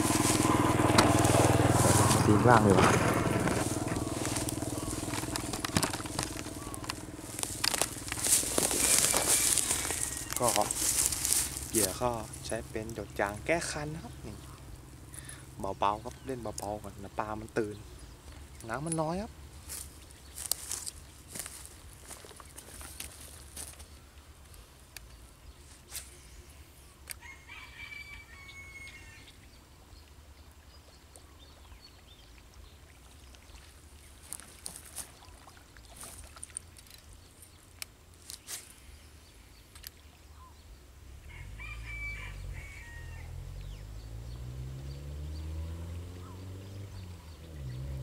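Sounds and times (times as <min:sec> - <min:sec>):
low engine hum: 0:00.0 - 0:24.4, 0:40.4 - 0:48.0
rooster crowing: 0:08.6 - 0:11.1, 0:27.2 - 0:29.3, 0:41.2 - 0:43.4.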